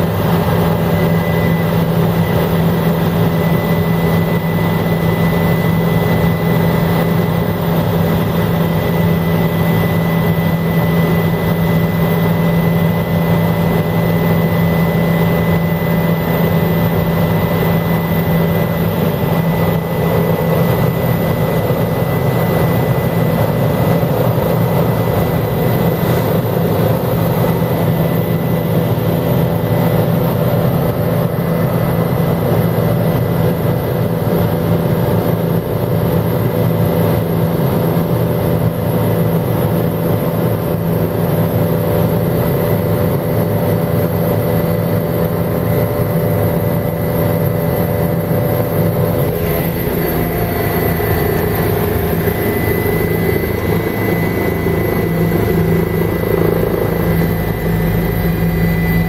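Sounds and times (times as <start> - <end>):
helicopter engine and rotors droning: 0.0 - 59.0
thin high whine: 43.5 - 59.0.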